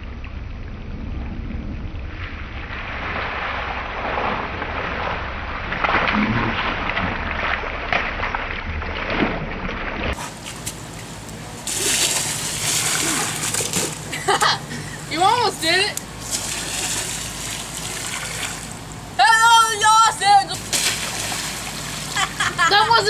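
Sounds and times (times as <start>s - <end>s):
wind rumble on microphone: 0.0s - 10.2s
splashing on wet plastic: 2.9s - 14.5s, 16.0s - 19.0s, 20.6s - 22.7s
water hissing from spray jets: 11.5s - 18.9s.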